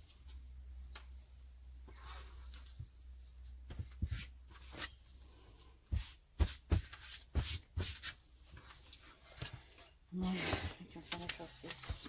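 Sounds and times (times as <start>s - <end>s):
hands rubbing fabric on table: 1.9s - 4.9s, 5.9s - 9.2s.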